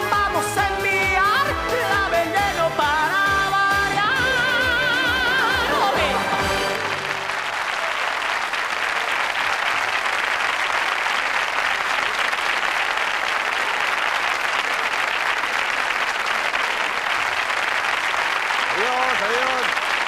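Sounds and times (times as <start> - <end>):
music: 0.0 - 7.5
audience applauding: 4.0 - 20.0.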